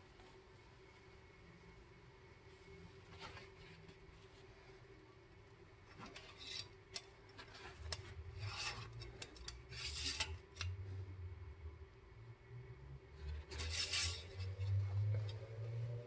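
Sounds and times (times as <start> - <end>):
dipstick scraping in tube: 13.3 - 15.1.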